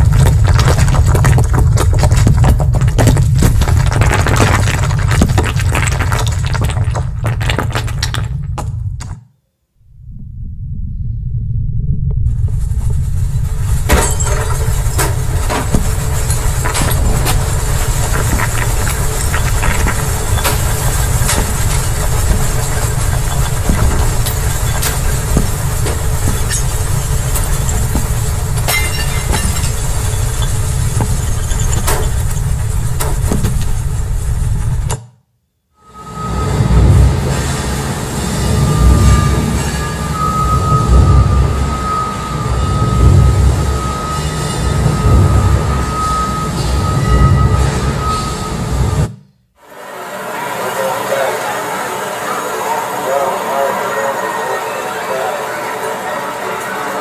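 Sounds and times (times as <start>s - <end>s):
deep continuous rumble: 0.0s - 9.2s, 9.8s - 35.0s, 36.2s - 49.2s
sliding rock clattering: 0.0s - 9.2s, 13.2s - 34.9s.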